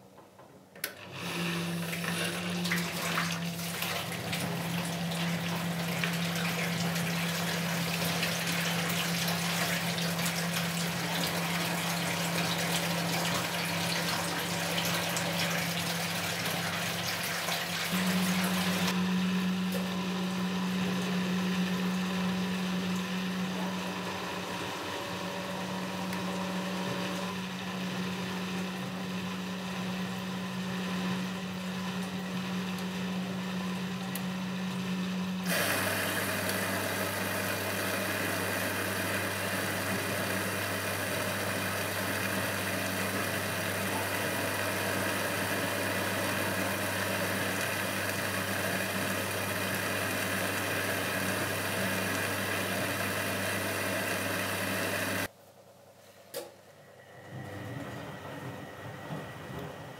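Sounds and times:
washing machine drum humming: 0:00.0 - 0:55.3, 0:57.2 - 0:59.9
washing machine hiss: 0:01.2 - 0:19.0, 0:35.4 - 0:55.3.

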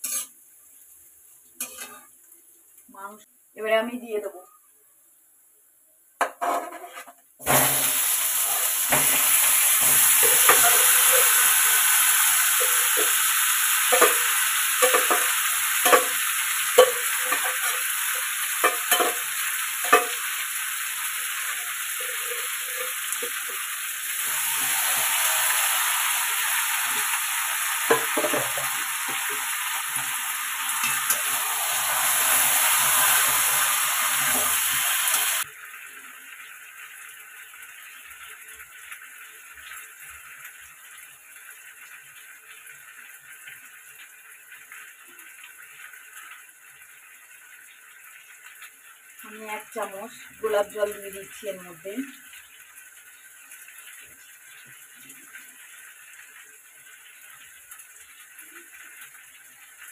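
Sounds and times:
spatula scraping a pan: 0:00.0 - 0:00.4, 0:06.4 - 0:07.7
chicken sizzling in hot oil: 0:00.0 - 0:03.2, 0:07.4 - 0:59.9.

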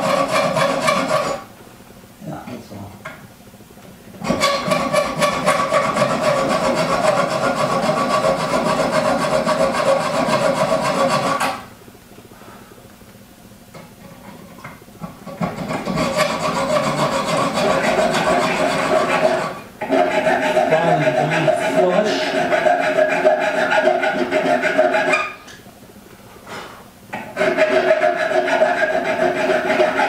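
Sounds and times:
metal-on-metal filing scrape: 0:00.0 - 0:01.5, 0:04.2 - 0:11.6, 0:15.3 - 0:25.4, 0:27.2 - 0:30.0.

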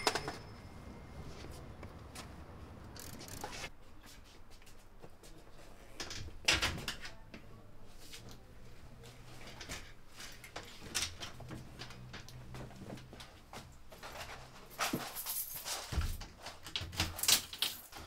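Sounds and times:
bicycle frame knocks and rattles: 0:09.6 - 0:18.0.

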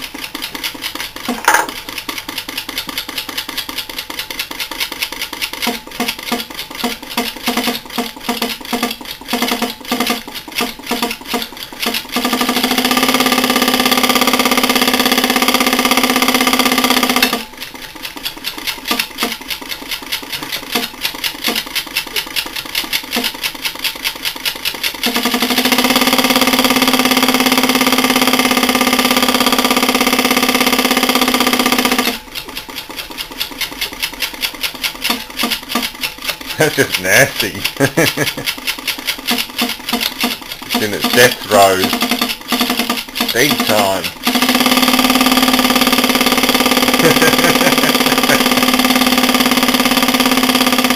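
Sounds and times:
compressor knocking rapidly: 0:00.0 - 0:50.9
compressor steady pitched drone: 0:40.0 - 0:50.9.

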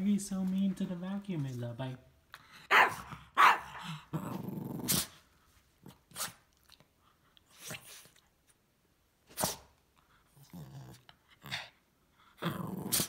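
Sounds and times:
puppy barking: 0:02.7 - 0:03.9
puppy growling: 0:03.0 - 0:05.2, 0:10.3 - 0:11.8, 0:12.4 - 0:13.0.

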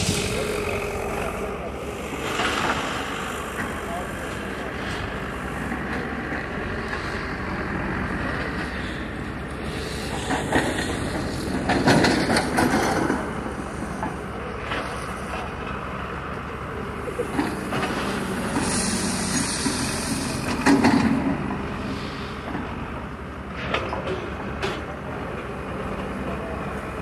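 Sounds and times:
excavator diesel engines running: 0:00.0 - 0:27.0
hydraulic hiss: 0:18.0 - 0:20.5.

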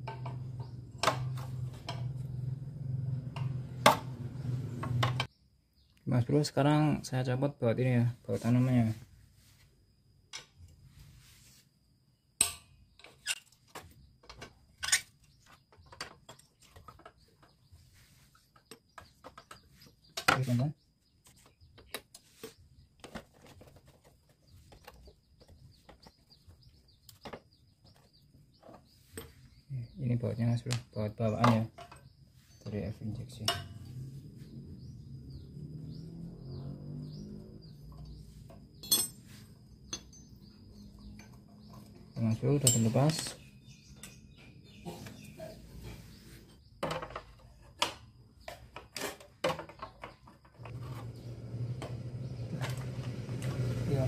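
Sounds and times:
small birds chirping: 0:00.0 - 0:03.7, 0:04.3 - 0:54.0
metal tools clicking and knocking: 0:12.4 - 0:17.6, 0:38.0 - 0:44.2.

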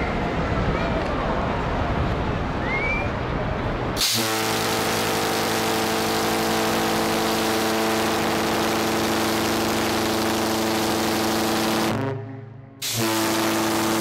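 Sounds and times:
ship's horn deep blast: 0:04.0 - 0:14.0.

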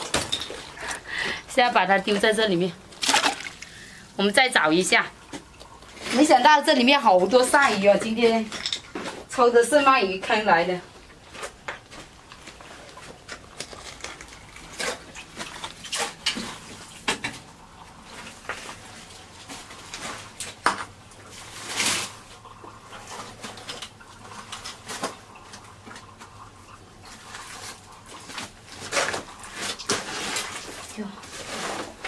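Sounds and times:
rustling debris: 0:11.1 - 0:17.3
rustling scrape: 0:21.3 - 0:22.4, 0:27.2 - 0:32.0.

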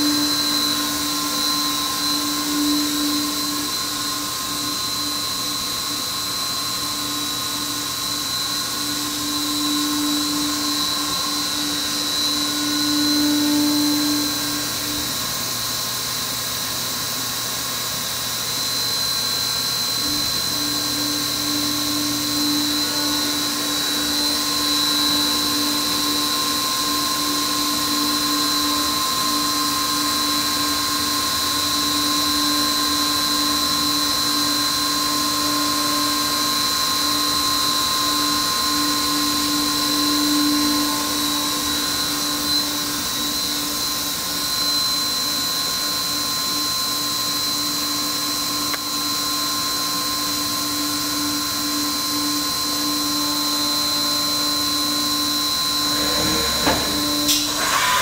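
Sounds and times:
machining center whine: 0:00.0 - 0:58.0.

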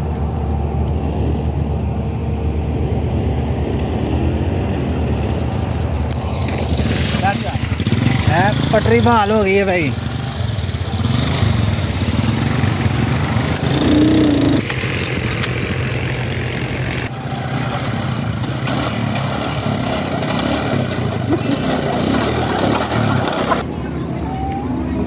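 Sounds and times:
small motorcycle engine running: 0:03.8 - 0:17.4, 0:18.2 - 0:23.7.

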